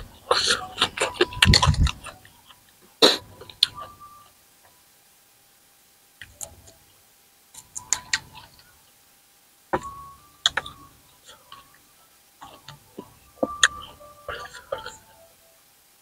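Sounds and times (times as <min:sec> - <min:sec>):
crunchy eating sounds: 0:00.0 - 0:03.9.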